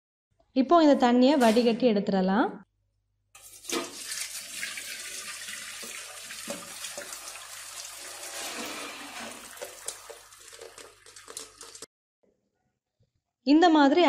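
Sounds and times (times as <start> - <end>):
water draining through colander: 3.4 - 11.9.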